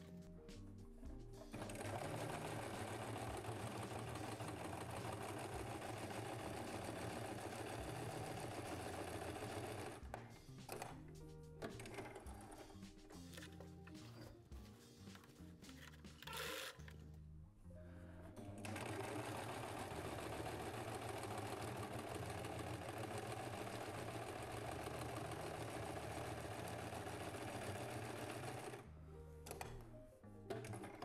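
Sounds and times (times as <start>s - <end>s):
background music: 0.0s - 31.0s
sewing machine running: 1.5s - 10.1s, 11.7s - 12.6s, 16.2s - 16.8s, 18.4s - 28.8s.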